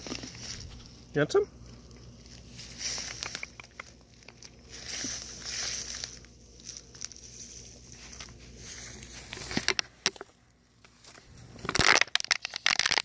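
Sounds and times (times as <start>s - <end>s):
plastic water bottle crinkling: 0.0s - 0.9s, 8.0s - 13.0s
tall grass brushing: 0.0s - 1.1s, 1.7s - 11.6s.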